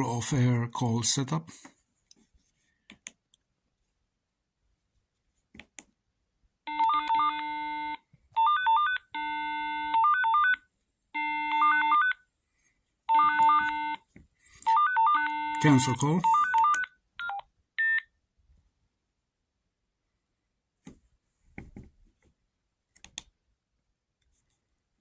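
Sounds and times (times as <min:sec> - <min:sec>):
radio electronic ringtone: 0:14.6 - 0:18.0.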